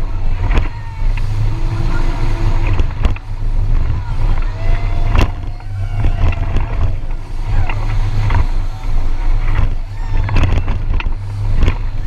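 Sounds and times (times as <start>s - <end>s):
hull knocking on waves: 0.0s - 12.0s
water rushing past hull: 0.0s - 12.0s
wind buffeting microphone: 0.0s - 12.0s.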